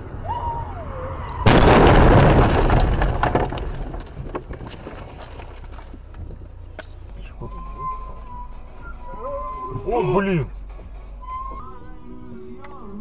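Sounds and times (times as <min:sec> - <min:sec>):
car crash impact: 0:01.4 - 0:06.4
crunching and cracks: 0:01.5 - 0:07.0.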